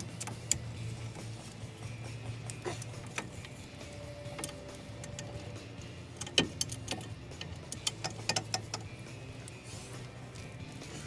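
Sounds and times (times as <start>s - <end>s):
metallic clinks of tools on parts: 2.5s - 9.6s.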